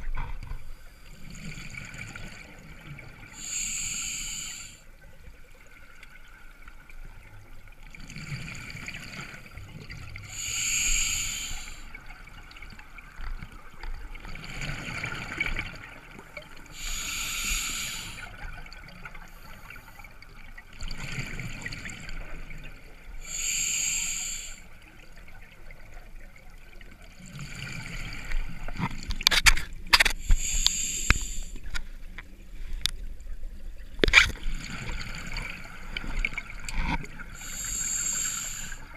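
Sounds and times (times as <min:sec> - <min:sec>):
regulator breathing hiss: 0:03.4 - 0:04.9, 0:10.2 - 0:12.0, 0:16.7 - 0:18.4, 0:23.2 - 0:24.8, 0:30.2 - 0:31.7, 0:37.4 - 0:38.9.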